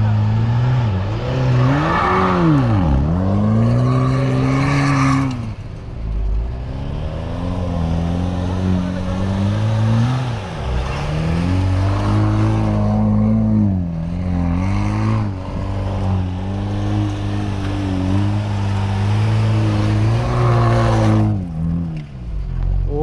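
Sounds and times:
car engine revving: 0.0s - 23.0s.

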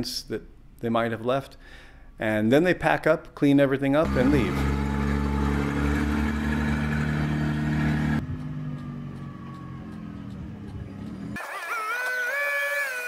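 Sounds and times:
forklift engine running: 4.0s - 11.7s.

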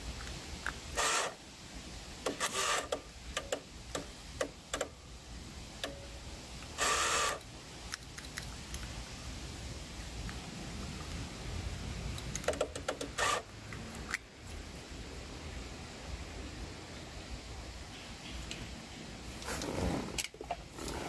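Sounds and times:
scraping rustles: 19.3s - 21.0s.

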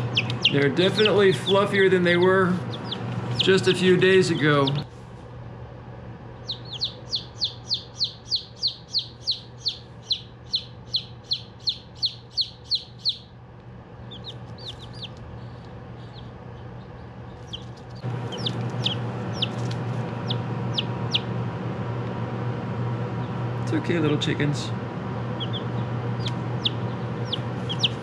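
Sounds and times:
chicks peeping: 0.0s - 4.9s, 6.3s - 13.3s, 14.0s - 21.4s, 25.2s - 28.0s
steady hum: 0.0s - 28.0s.

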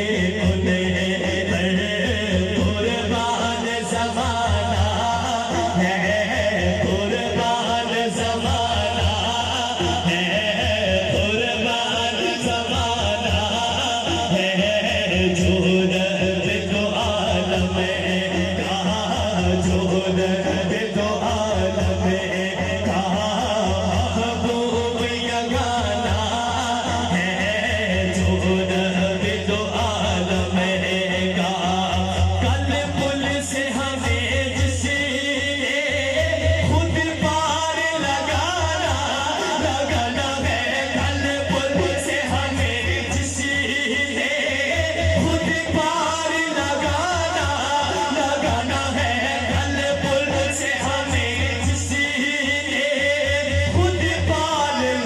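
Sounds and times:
person singing devotional song: 0.0s - 55.0s.

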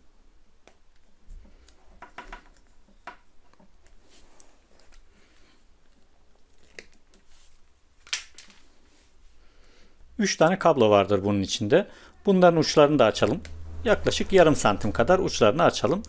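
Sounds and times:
scraping and rustling of cable sheath: 1.4s - 9.3s.

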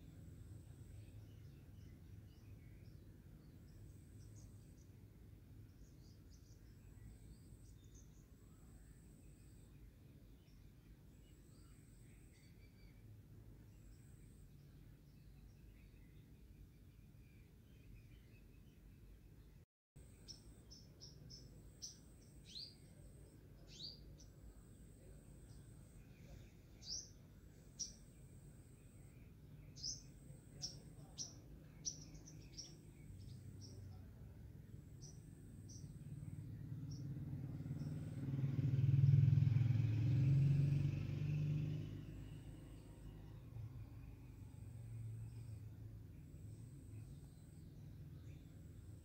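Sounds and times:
birds chirping: 0.0s - 49.0s
vehicle engine passing by: 32.0s - 49.0s.

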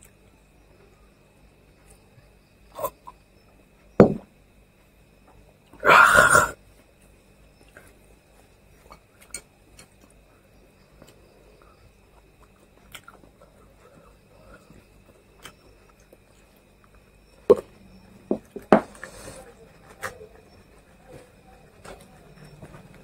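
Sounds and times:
faint clicks of eating: 0.0s - 4.0s, 6.6s - 23.0s
glass knocking on table: 4.0s - 4.3s.

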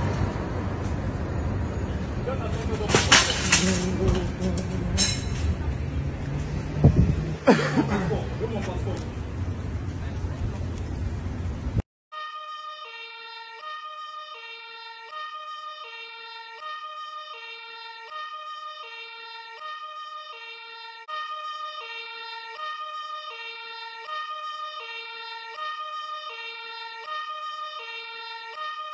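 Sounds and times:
two-tone siren: 12.1s - 28.9s.

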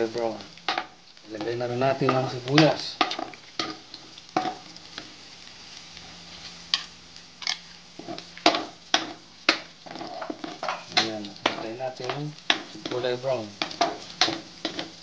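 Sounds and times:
garlic sizzling in oil: 0.0s - 15.0s
metal spatula scraping wok: 7.4s - 9.2s, 9.8s - 15.0s.

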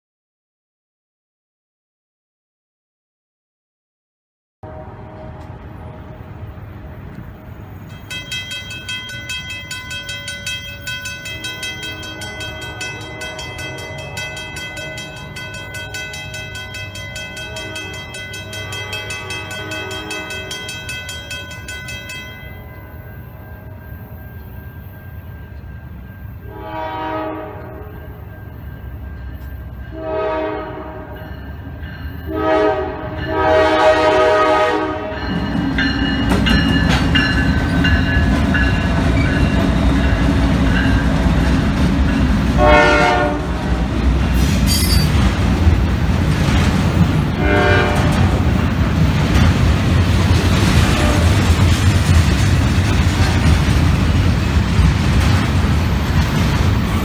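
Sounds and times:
locomotive horn blasts: 4.6s - 6.5s, 11.5s - 16.4s, 17.3s - 20.8s, 26.4s - 28.2s, 29.9s - 31.2s, 32.3s - 35.4s, 42.6s - 43.8s, 47.4s - 48.5s, 50.8s - 51.5s
low rumble of train: 4.6s - 57.0s
bell ringing rapidly: 8.0s - 25.8s, 44.7s - 45.2s.

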